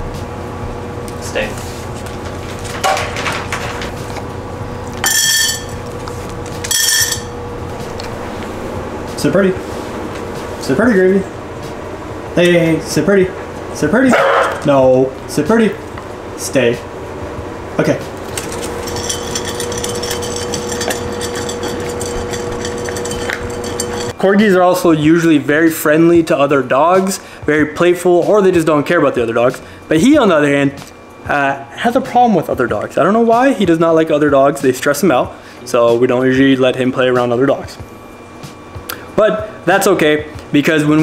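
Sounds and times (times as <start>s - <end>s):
steady low hum: 0.0s - 41.0s
dog crunching food: 18.2s - 19.6s.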